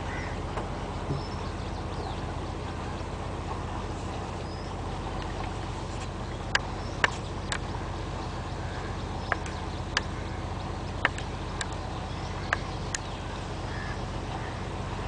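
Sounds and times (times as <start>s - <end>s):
boat engine humming: 0.0s - 15.0s.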